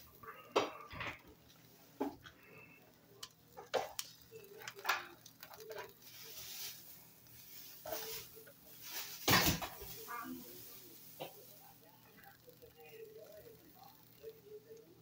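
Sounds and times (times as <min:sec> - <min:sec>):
tongs clicking on grill grate: 0:00.0 - 0:06.4
meat sizzling: 0:00.0 - 0:14.9.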